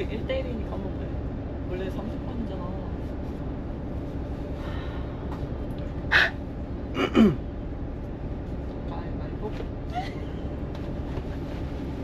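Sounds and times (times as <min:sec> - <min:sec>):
idling bus rumble: 0:00.0 - 0:12.0.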